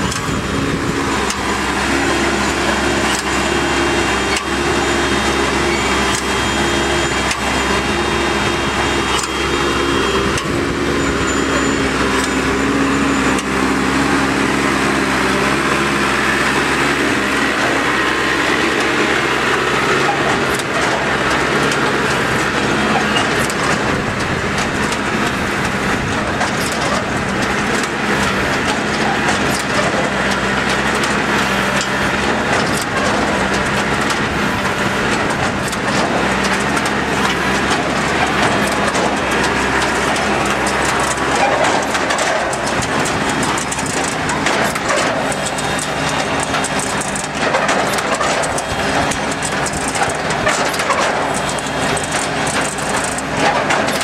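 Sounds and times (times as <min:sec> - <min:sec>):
harvester mechanism rattling: 0:00.0 - 0:54.0
tractor diesel engine running: 0:00.0 - 0:54.0.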